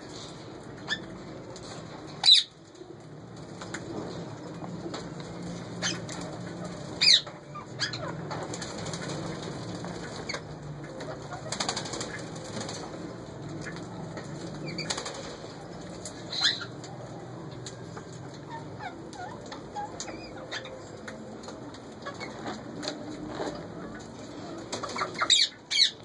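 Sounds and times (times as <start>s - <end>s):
parakeets squawking: 2.2s - 2.5s, 5.8s - 6.3s, 6.9s - 9.2s, 16.2s - 16.8s, 18.4s - 20.9s, 24.8s - 26.0s.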